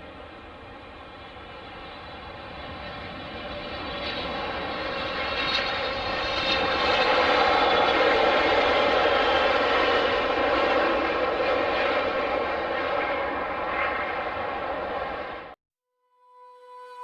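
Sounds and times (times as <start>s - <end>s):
jet engines whining: 0.0s - 15.6s.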